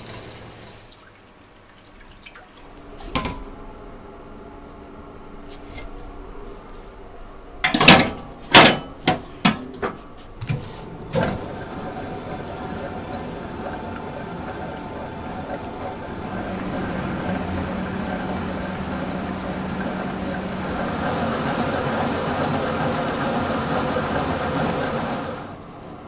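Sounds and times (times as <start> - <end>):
knocks and clatter of kitchen equipment: 3.0 - 3.5, 7.6 - 25.4.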